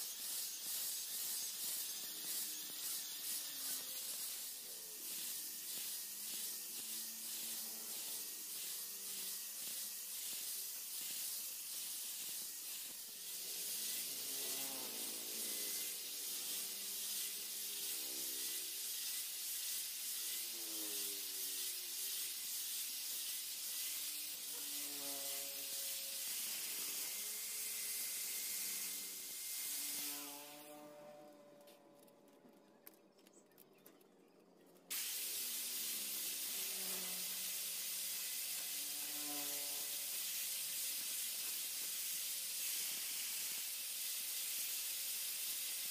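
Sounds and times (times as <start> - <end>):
angle grinder grinding steel: 0.0 - 31.2.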